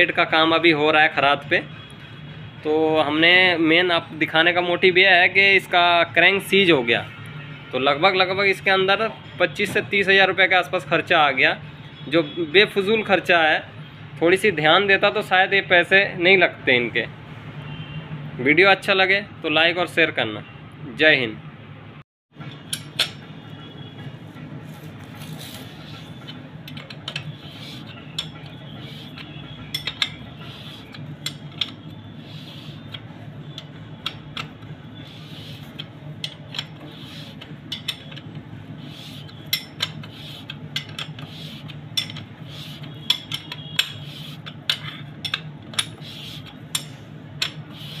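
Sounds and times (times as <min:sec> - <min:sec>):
metallic clinks of tools: 0:27.9 - 0:32.0, 0:43.0 - 0:46.0.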